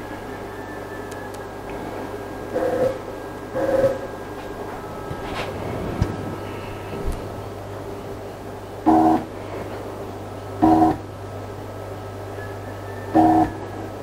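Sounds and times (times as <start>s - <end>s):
machine low hum: 0.0s - 14.0s
stepper motors whining: 0.0s - 14.0s.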